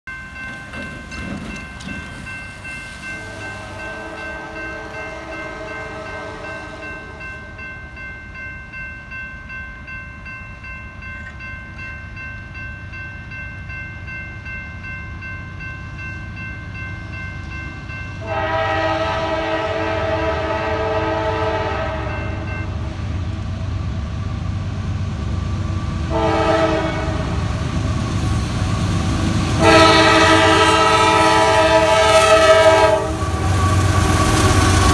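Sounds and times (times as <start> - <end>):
railroad crossing bell ringing: 0.0 - 23.3, 26.1 - 34.9
train rumble: 0.1 - 34.9
locomotive air horn blasts: 3.2 - 7.4, 18.2 - 22.5, 26.1 - 27.5, 29.6 - 34.4.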